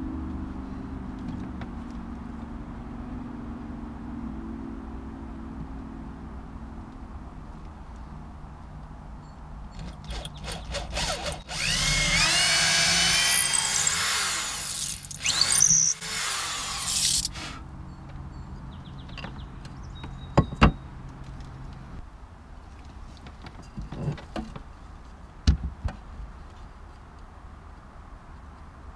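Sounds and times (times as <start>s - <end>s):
electric drill boring into wood: 9.8s - 17.5s.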